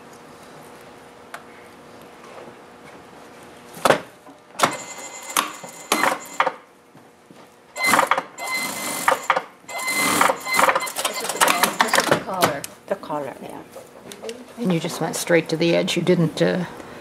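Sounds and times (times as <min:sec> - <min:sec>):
sewing machine motor whine: 0:07.8 - 0:12.0.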